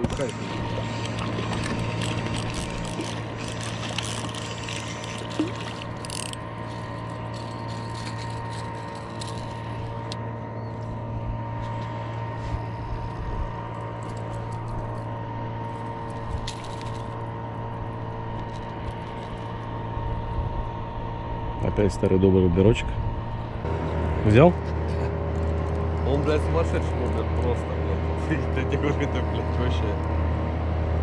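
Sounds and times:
water against hull: 0.0s - 10.2s
boat motor running: 0.0s - 31.0s.

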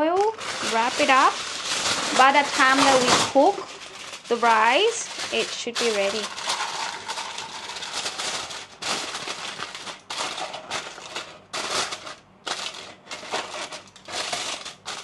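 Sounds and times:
aluminium foil crinkling: 0.0s - 15.0s.

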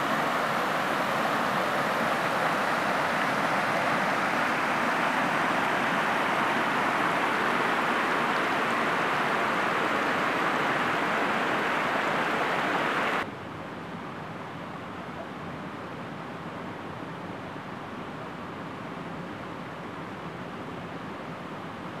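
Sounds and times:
creek water rushing over rocks: 0.0s - 13.2s.

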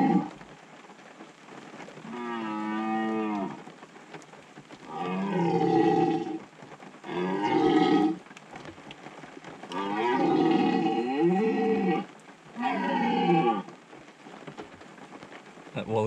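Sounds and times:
deer roar call bellows: 0.0s - 0.4s, 2.0s - 3.6s, 4.9s - 6.4s, 7.0s - 8.2s, 9.7s - 13.7s.

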